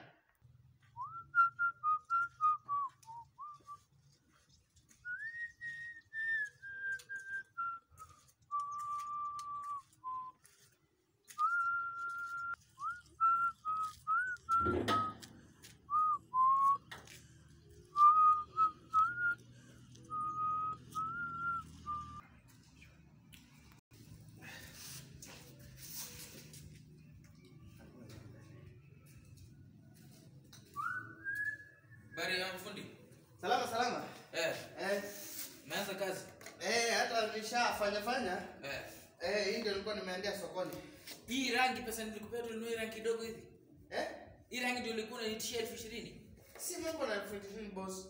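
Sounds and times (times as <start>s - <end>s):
person whistling: 1.0s - 3.8s, 5.0s - 10.4s, 11.4s - 15.2s, 15.9s - 16.9s, 17.9s - 22.2s, 30.8s - 32.2s
thump: 14.6s - 15.2s.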